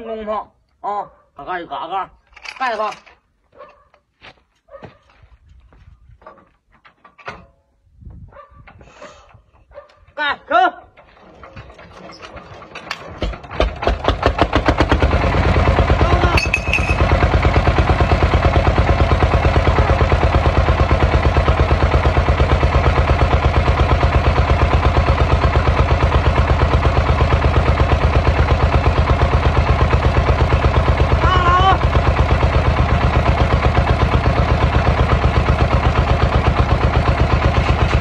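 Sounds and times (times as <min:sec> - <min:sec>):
diesel tractor engine starting: 0:10.8 - 0:38.0.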